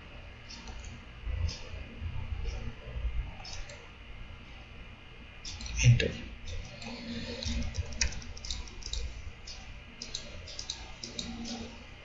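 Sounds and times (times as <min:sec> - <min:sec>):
laptop keyboard and mouse clicks: 0:06.5 - 0:11.7.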